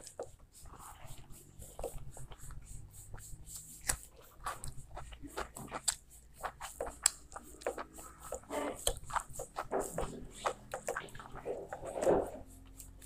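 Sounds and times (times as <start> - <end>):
person chewing with wet smacks: 0.0 - 13.0.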